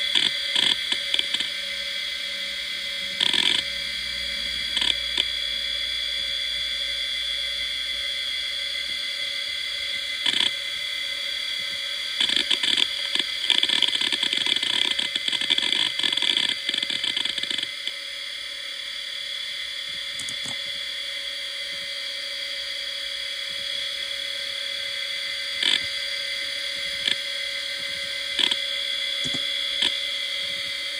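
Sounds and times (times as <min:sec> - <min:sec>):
hard drive seek clicks: 0:00.0 - 0:01.5, 0:03.1 - 0:03.7, 0:04.7 - 0:05.3, 0:10.2 - 0:10.6, 0:11.6 - 0:18.0, 0:25.6 - 0:26.0, 0:26.7 - 0:30.8
hard drive high whine: 0:00.0 - 0:30.9.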